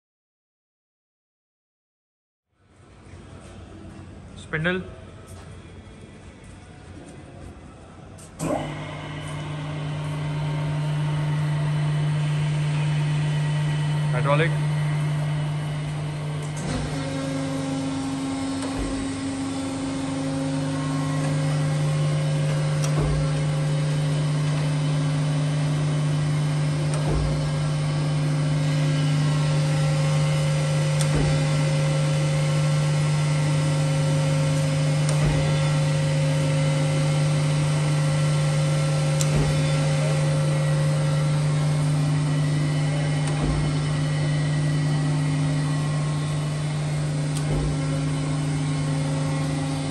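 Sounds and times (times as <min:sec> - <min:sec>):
grinder motor humming: 0:08.4 - 0:49.9.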